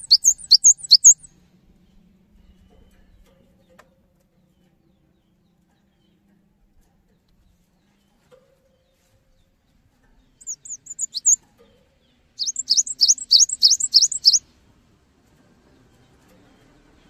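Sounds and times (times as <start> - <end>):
bird singing: 0.0 - 1.3, 10.2 - 11.4, 12.1 - 14.4.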